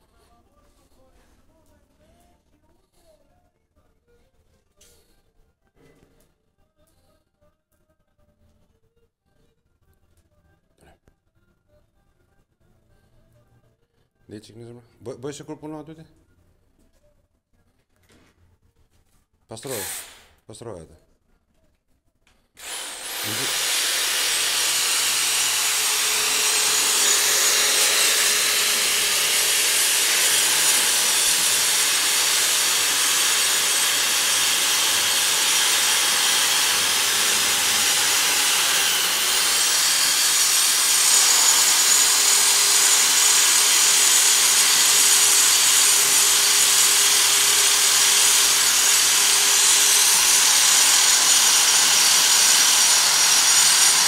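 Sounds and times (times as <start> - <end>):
angle grinder grinding metal: 22.6 - 54.0.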